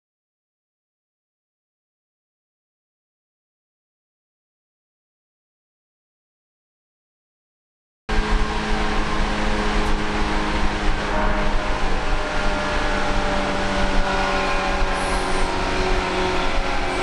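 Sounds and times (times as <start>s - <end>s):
train motors humming: 8.1s - 17.0s
train wheels rumbling on track: 8.1s - 17.0s.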